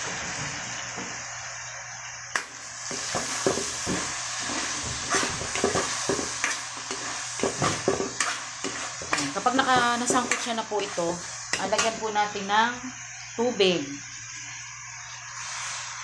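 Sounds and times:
chicken sizzling in a wok: 0.0 - 16.0
spatula scraping a pan: 2.9 - 12.0.

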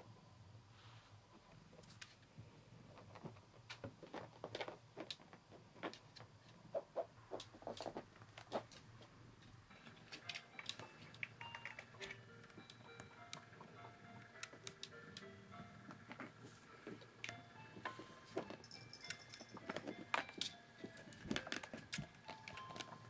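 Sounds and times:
soft background music: 7.7 - 23.0.

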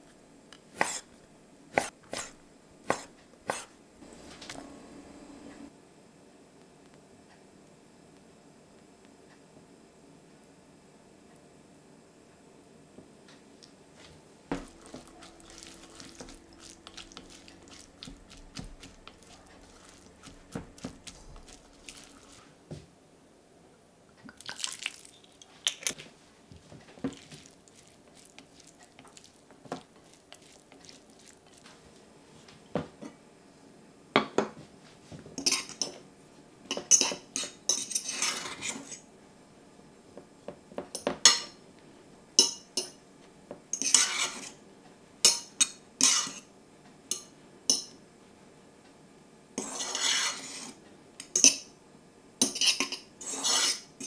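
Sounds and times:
fork scraping and clinking saucepan: 14.5 - 22.5, 35.4 - 36.0, 36.7 - 39.0, 43.8 - 44.6, 45.3 - 46.5, 49.6 - 51.7, 52.4 - 54.0.

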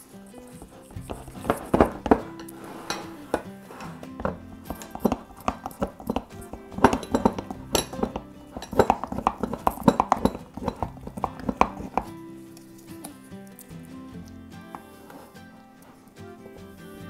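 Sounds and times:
wooden stick knocking on glass: 4.2 - 12.2.

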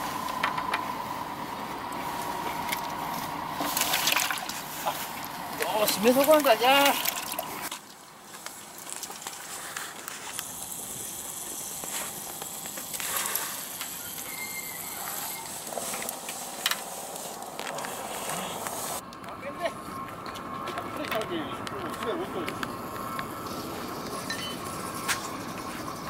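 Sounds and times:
steady outdoor hiss: 0.0 - 26.0
fishing tackle clicks and rustles: 2.4 - 14.3.

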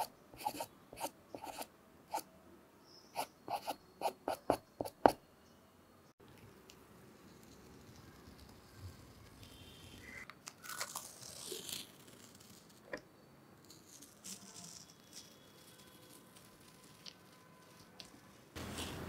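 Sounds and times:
masking tape peeling: 10.4 - 12.8
paper rustling: 14.0 - 19.0.

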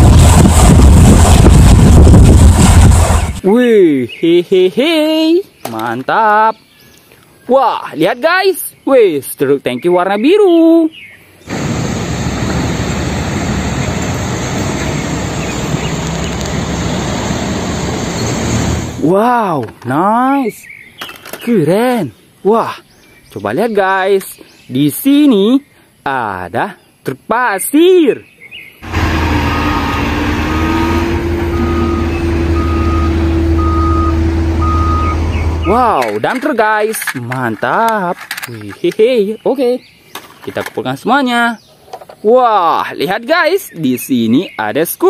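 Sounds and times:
truck engine rumble: 0.0 - 3.4, 11.5 - 19.0, 28.8 - 36.4
road noise: 0.0 - 3.5, 11.2 - 19.9, 28.8 - 42.2
reversing alarm beeping: 29.2 - 35.9.

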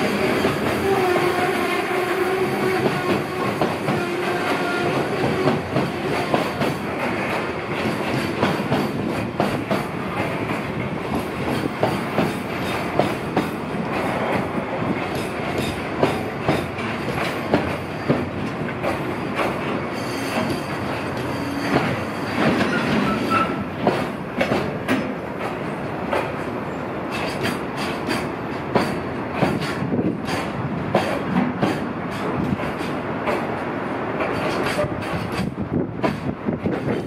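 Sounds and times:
freight train rumble: 0.0 - 37.0
train wheels clacking over rail joints: 0.0 - 37.0
faint wheel squeal: 21.3 - 23.6.

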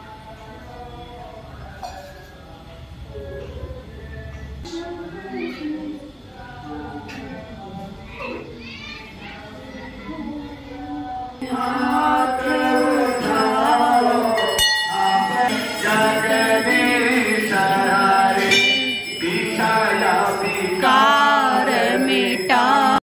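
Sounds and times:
devotional hymn singing: 10.3 - 23.0
temple bells ringing: 11.4 - 23.0.

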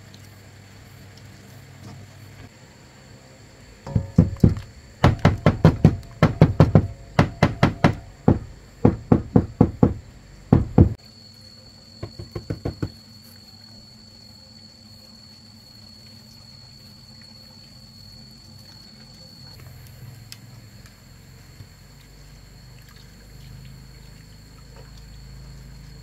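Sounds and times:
rapid hard knocks: 3.9 - 11.0, 12.0 - 13.0.

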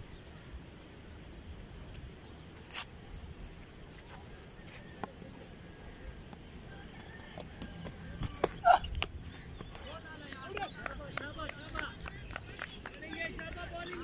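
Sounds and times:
distant voices: 3.4 - 14.0.

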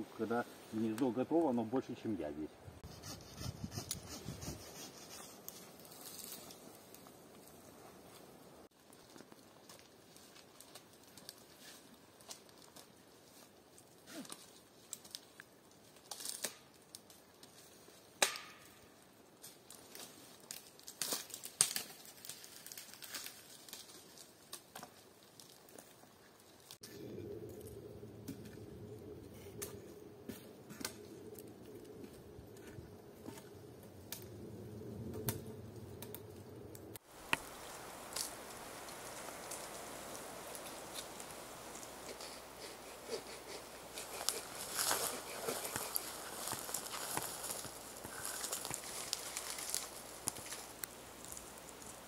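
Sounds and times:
pine branches rustling: 0.0 - 52.0
scraping and crackling against bark: 2.8 - 52.0
branches snapping: 14.2 - 17.6, 18.2 - 18.8, 19.4 - 25.9, 37.2 - 52.0.

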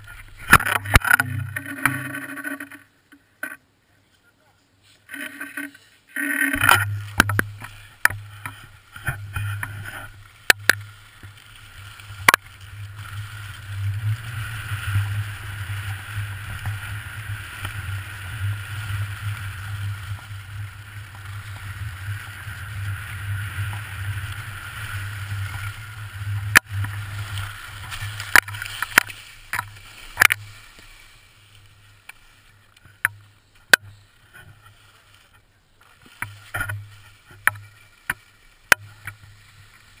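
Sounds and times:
skis scraping over snow: 0.0 - 2.8, 4.4 - 40.0
wind rumbling on microphone: 6.6 - 30.8.

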